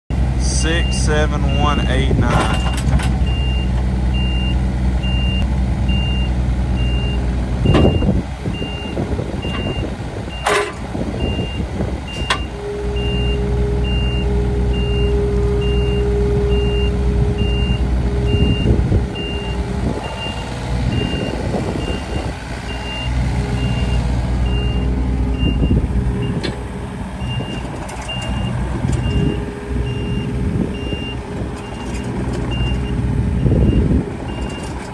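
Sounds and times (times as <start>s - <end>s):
diesel engine running: 0.1s - 34.9s
hydraulic whine: 2.4s - 34.9s
sharp metallic clanks: 10.4s - 10.8s
high beeping alarm: 11.2s - 26.4s, 27.2s - 34.7s.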